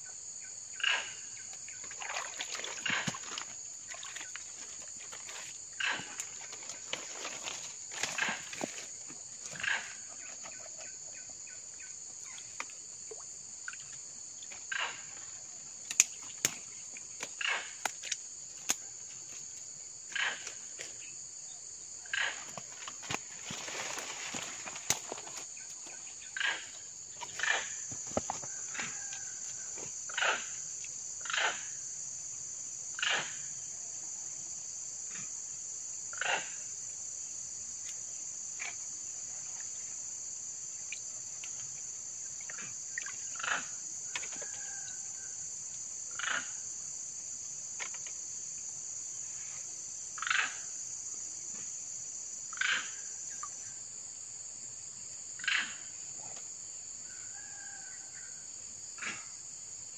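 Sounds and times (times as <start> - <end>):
insects droning: 0.0 - 59.9
hands sloshing water: 1.8 - 9.6.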